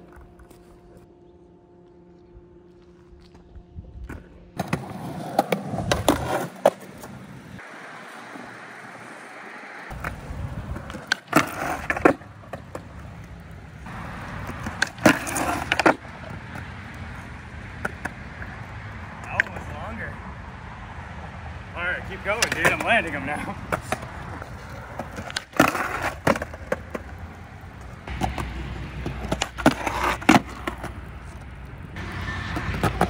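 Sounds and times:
skateboard wheels rolling on concrete: 0.0s - 33.0s
skateboard clacking and scraping: 4.1s - 19.7s, 22.2s - 33.0s.

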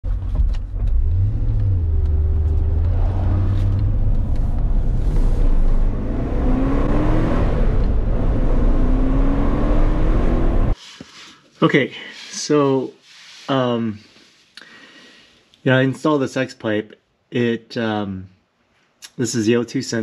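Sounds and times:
car engine revving in cabin: 0.1s - 10.8s.

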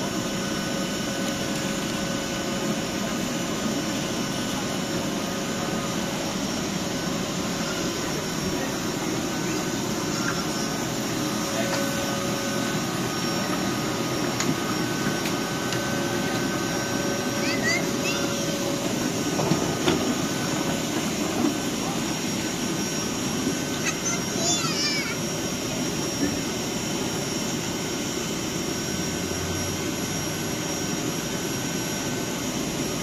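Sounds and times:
train fans humming: 0.0s - 33.0s
faint held tone: 9.2s - 17.3s.

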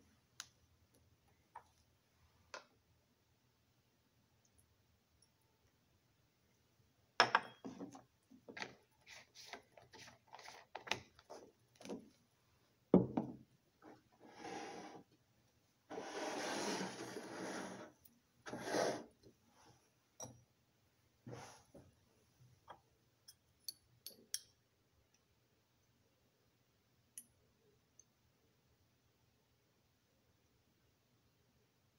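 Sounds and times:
wooden rack scraping on bench: 15.9s - 17.9s, 18.5s - 19.1s.

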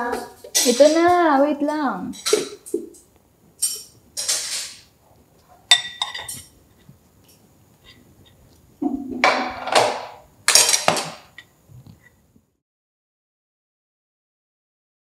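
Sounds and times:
dishes and cutlery clinking: 0.0s - 1.4s, 2.1s - 8.0s, 9.1s - 11.5s
plates set on glass table: 2.1s - 12.2s.

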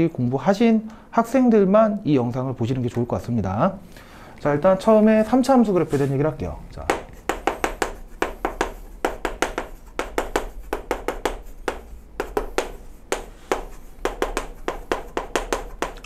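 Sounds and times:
writing taps and scratches on board: 6.8s - 16.0s.

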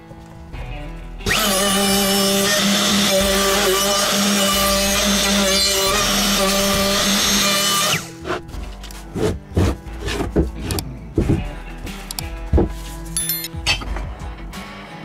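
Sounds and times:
router cutting wood: 1.2s - 8.3s.

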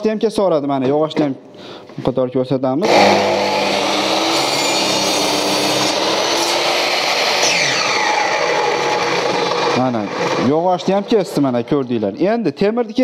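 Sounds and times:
saw motor winding down: 2.8s - 12.0s
mitre saw cutting wood: 2.8s - 12.1s.

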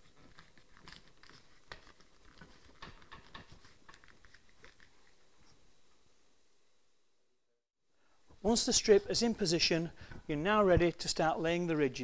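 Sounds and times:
faint crinkling and tapping: 0.0s - 6.0s.

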